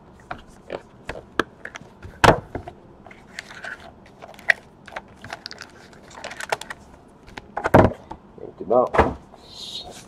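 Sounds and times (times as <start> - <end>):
foil packs crinkling: 3.5 - 6.8.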